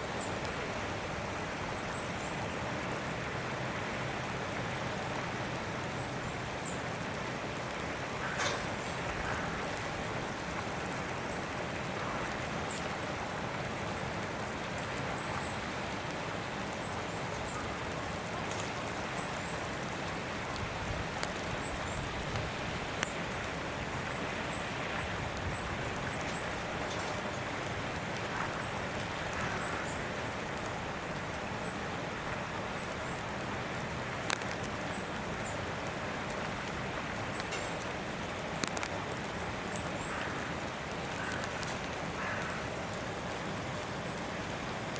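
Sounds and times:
outdoor background hiss: 0:00.0 - 0:44.9
light ticks: 0:16.8 - 0:23.6, 0:25.3 - 0:29.5, 0:34.2 - 0:43.0.

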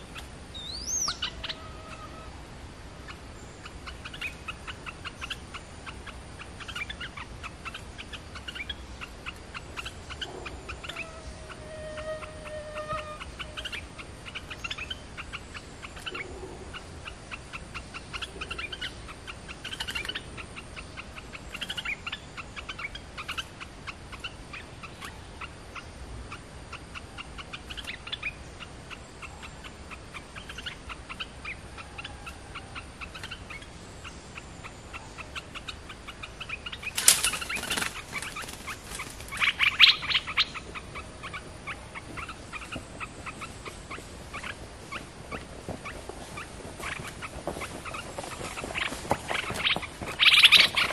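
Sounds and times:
birds calling: 0:00.0 - 0:50.9
wing-flapping and rattling trap: 0:36.9 - 0:39.3.

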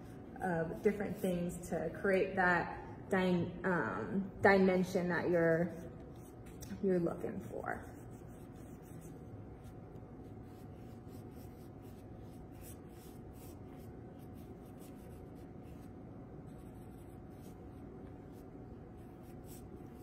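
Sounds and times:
room hum: 0:00.0 - 0:20.0
paintbrush strokes on canvas: 0:05.2 - 0:20.0.

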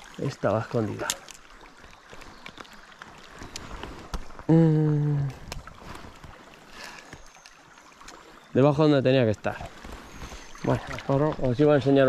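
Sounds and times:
river and wading noise: 0:00.0 - 0:12.0
faint clicks: 0:02.1 - 0:04.4.

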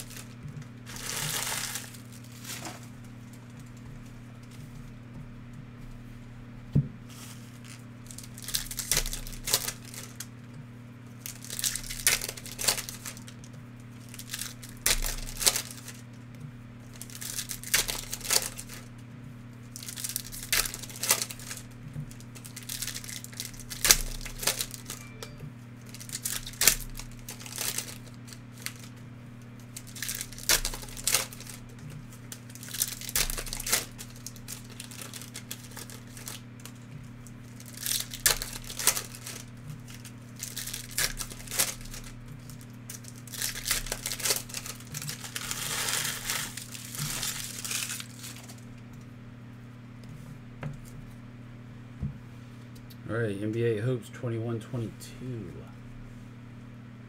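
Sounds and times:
plastic wrappers crinkling and tearing: 0:00.0 - 0:04.6, 0:07.1 - 0:10.5, 0:11.2 - 0:25.1, 0:25.8 - 0:48.8.

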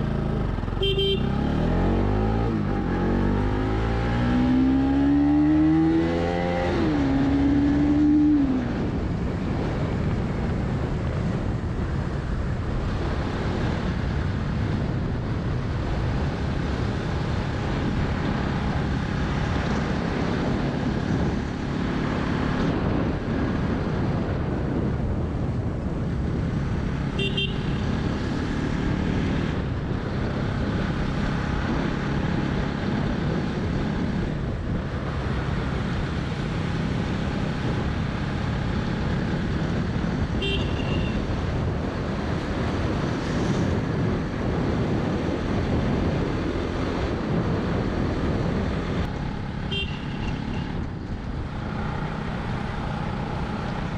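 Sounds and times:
motorcycle engine hum: 0:00.0 - 0:53.9
road noise: 0:00.0 - 0:53.9
short horn toot: 0:00.8 - 0:01.3.

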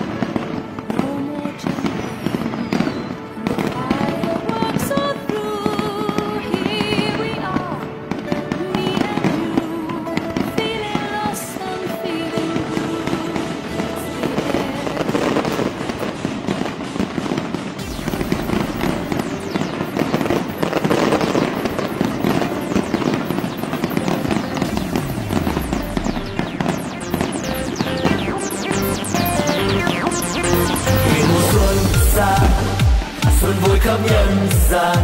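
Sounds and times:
fireworks crackling and popping: 0:00.0 - 0:35.0
music: 0:00.0 - 0:35.0
rising firework whistles: 0:02.3 - 0:04.1, 0:15.0 - 0:33.2.

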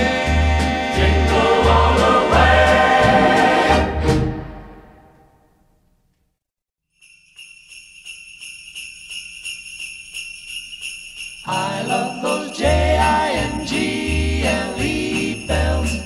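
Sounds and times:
sleigh bells shaking: 0:00.0 - 0:03.6, 0:06.9 - 0:16.0
music: 0:00.0 - 0:05.5, 0:07.0 - 0:16.0.

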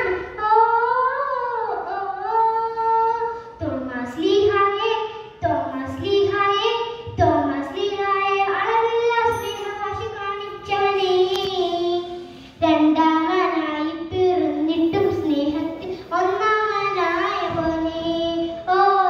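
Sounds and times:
girl singing into a microphone: 0:00.0 - 0:19.0.

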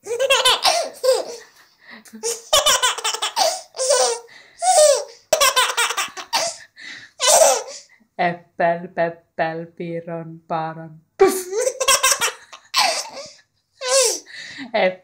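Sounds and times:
baby laughing: 0:00.0 - 0:01.6, 0:02.2 - 0:06.6, 0:07.2 - 0:07.9, 0:11.2 - 0:14.3
baby gasping: 0:00.1 - 0:01.4, 0:02.2 - 0:07.9, 0:12.7 - 0:14.4.

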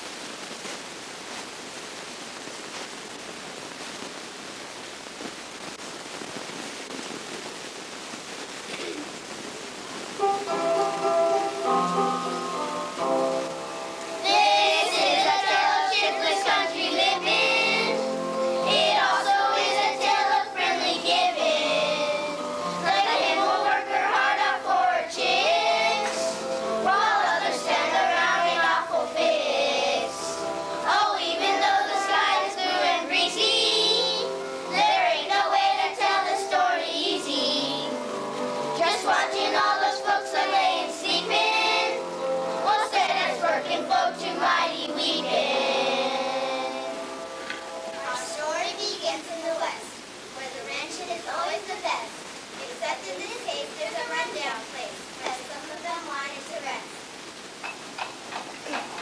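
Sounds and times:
instrumental accompaniment: 0:10.2 - 0:32.1, 0:37.2 - 0:48.4
children singing together: 0:12.8 - 0:49.4.

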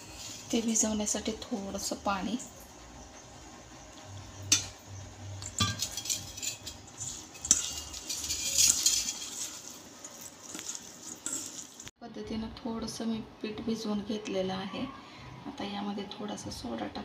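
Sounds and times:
clinks against bowl: 0:05.4 - 0:09.7
hand mixing batter squelching: 0:06.3 - 0:11.9.

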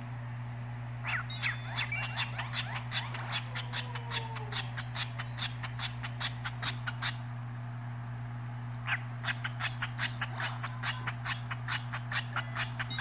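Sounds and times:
steady low hum: 0:00.0 - 0:13.0
cockatiel chirping: 0:01.0 - 0:07.2, 0:08.8 - 0:13.0.

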